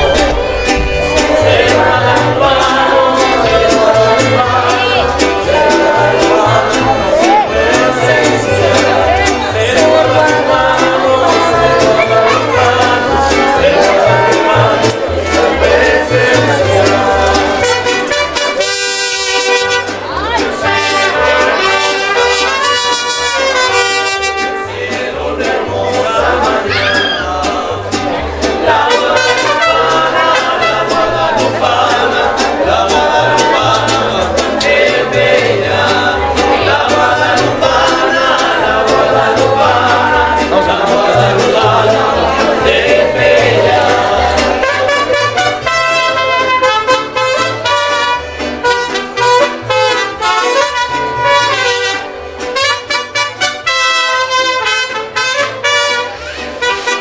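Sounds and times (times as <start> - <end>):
trumpets playing melody: 0.0 - 2.7, 17.5 - 24.8, 28.8 - 31.2, 44.5 - 57.0
bass beat: 0.0 - 18.4, 25.4 - 47.8
person singing: 0.0 - 18.7, 20.2 - 51.7
mariachi band playing: 0.0 - 57.0.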